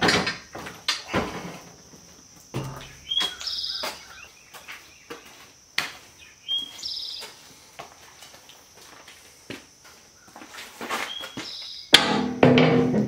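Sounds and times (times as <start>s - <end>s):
songbird singing: 0.0s - 8.6s, 10.0s - 12.1s.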